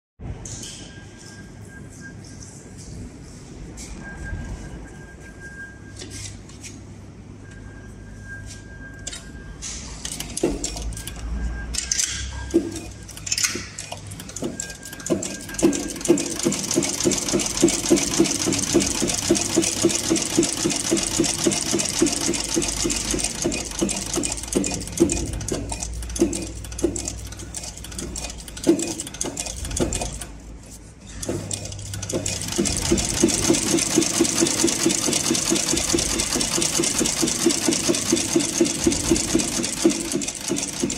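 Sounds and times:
sewing machine stitching leather: 0:10.1 - 0:11.2, 0:12.5 - 0:30.4, 0:31.2 - 0:40.9.

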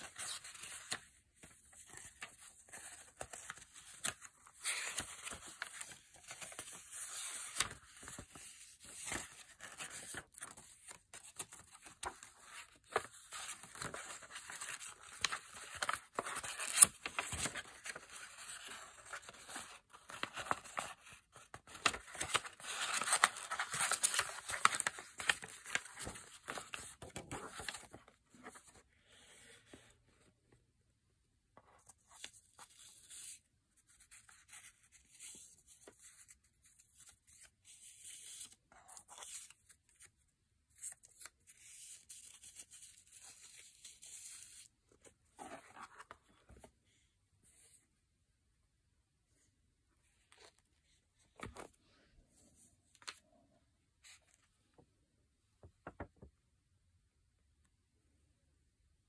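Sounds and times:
paper pages rustling: 0:00.0 - 0:30.0, 0:31.6 - 0:40.2, 0:40.8 - 0:47.0, 0:55.8 - 0:56.2.

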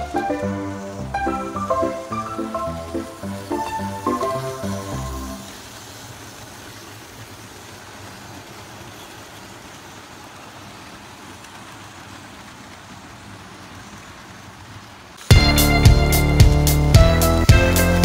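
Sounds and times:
model train motors whirring: 0:00.0 - 0:18.0.

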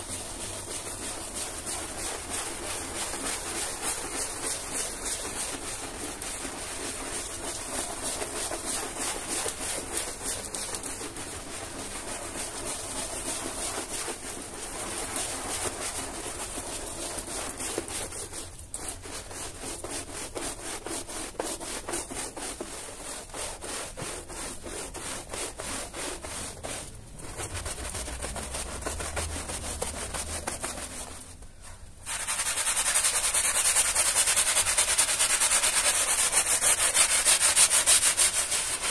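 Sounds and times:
brush scrubbing wet carpet: 0:00.0 - 0:38.9
foam squelching: 0:00.0 - 0:38.9.

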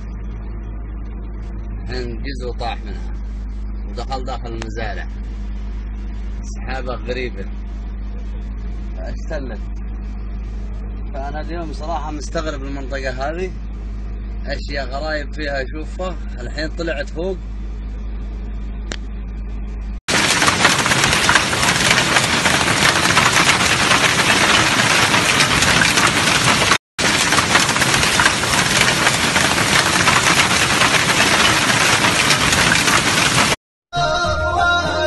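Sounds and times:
vehicle engine hum: 0:00.0 - 0:35.0
hail and heavy rain pelting: 0:20.1 - 0:33.6
music: 0:33.9 - 0:35.0.

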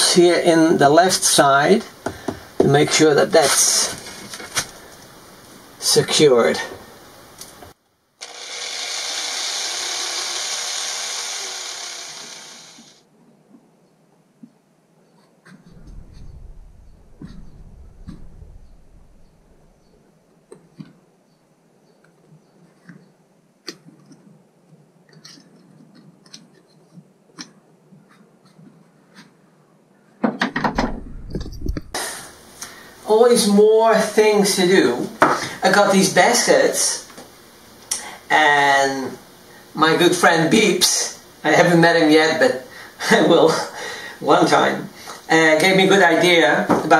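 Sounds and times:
cordless drill boring wood: 0:08.2 - 0:13.0.

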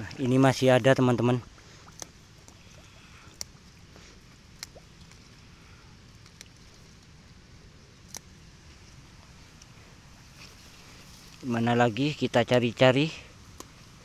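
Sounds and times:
low steady hiss: 0:00.0 - 0:14.0
plant stems snapping: 0:04.5 - 0:05.2, 0:08.0 - 0:08.3, 0:13.5 - 0:13.8.

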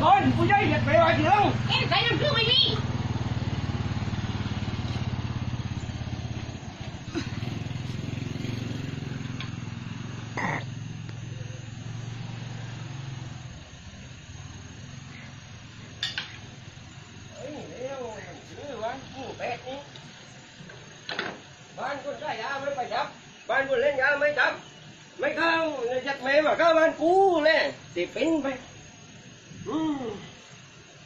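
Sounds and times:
vehicle engine idling: 0:00.0 - 0:19.7.

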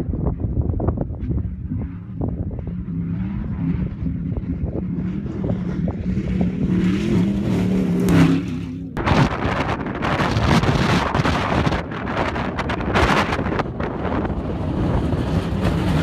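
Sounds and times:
wind noise on microphone: 0:00.0 - 0:16.0
truck engine passing: 0:01.7 - 0:11.5.

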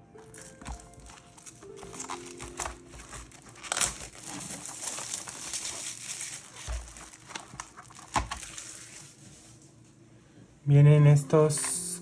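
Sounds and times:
cellophane wrapper crinkling: 0:00.2 - 0:09.7.

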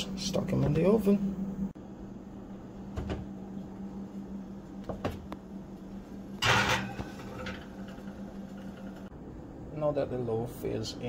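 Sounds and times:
steady low hum: 0:00.0 - 0:11.0
metal pan scraping on a wire rack: 0:06.4 - 0:08.1.

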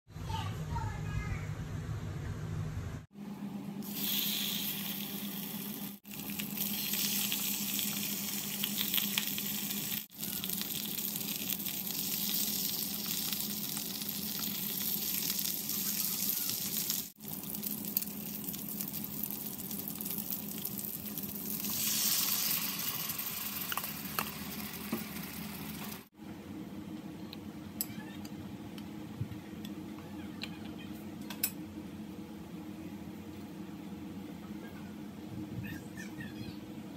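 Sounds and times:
fish sizzling in oil: 0:03.8 - 0:26.1
glaze bubbling: 0:03.8 - 0:26.1.

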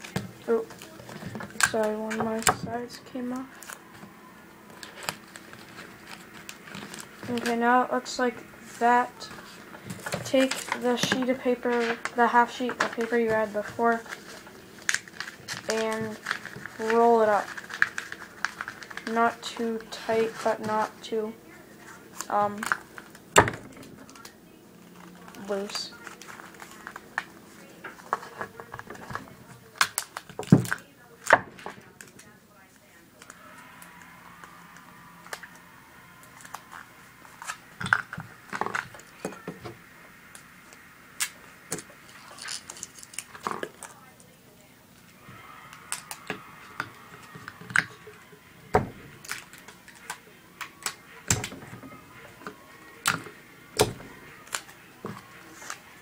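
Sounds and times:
paper rustling: 0:00.0 - 0:21.0, 0:21.8 - 0:32.4.

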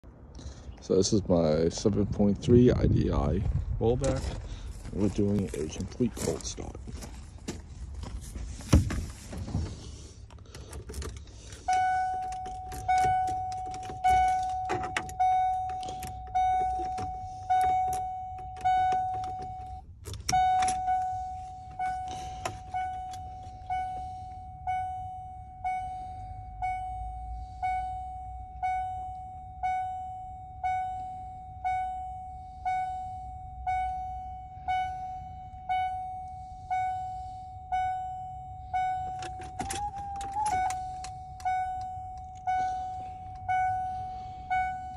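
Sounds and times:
dashboard warning chime: 0:11.0 - 0:44.9.

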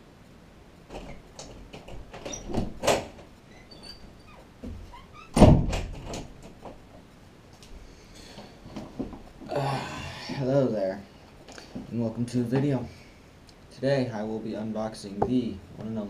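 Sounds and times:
knocks and bumps: 0:00.9 - 0:03.4, 0:04.3 - 0:06.9
short squeaks: 0:02.2 - 0:02.6, 0:03.4 - 0:05.4
loud thump: 0:05.4 - 0:06.1.

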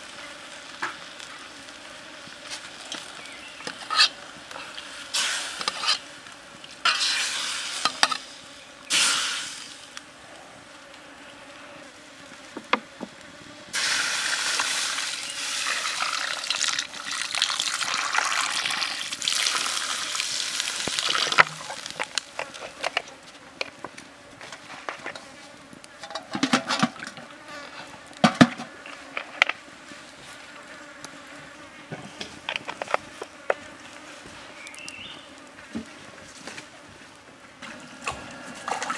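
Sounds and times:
campfire crackling and popping: 0:00.0 - 0:11.0, 0:12.0 - 0:31.5, 0:32.2 - 0:38.9
insects buzzing: 0:00.0 - 0:38.9
metal ladle scraping a wok: 0:03.8 - 0:04.2, 0:05.2 - 0:06.0
water pouring into a wok: 0:13.8 - 0:22.0.

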